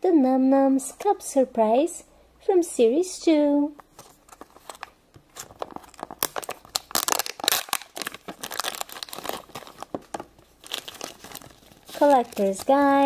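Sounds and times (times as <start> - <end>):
plastic packaging crinkling and tearing: 3.9 - 13.0.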